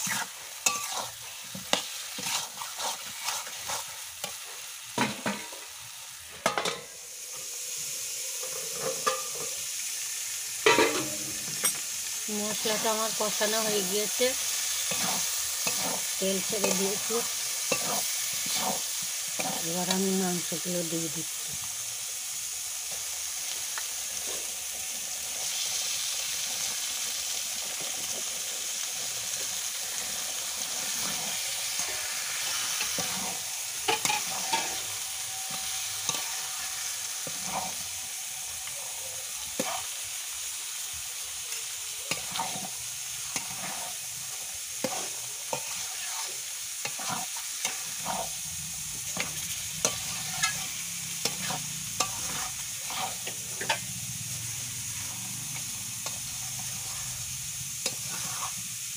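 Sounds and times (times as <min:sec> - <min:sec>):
metal spatula scraping a pan: 0:00.0 - 0:05.6, 0:10.6 - 0:11.8, 0:12.6 - 0:20.5, 0:29.9 - 0:40.2, 0:41.9 - 0:58.9
meat sizzling in hot oil: 0:00.0 - 0:58.9.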